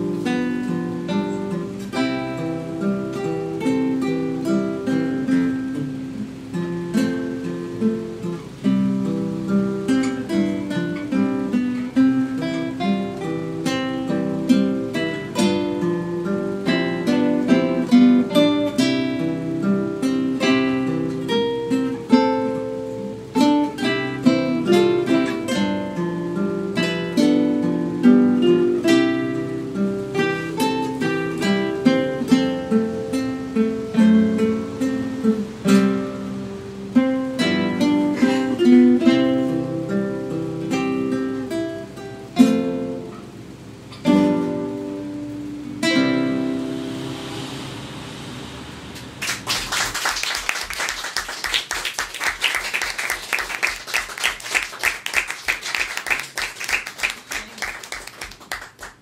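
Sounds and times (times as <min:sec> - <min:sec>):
classical guitars playing: 0:00.0 - 0:59.0
audience applauding: 0:49.0 - 0:59.0.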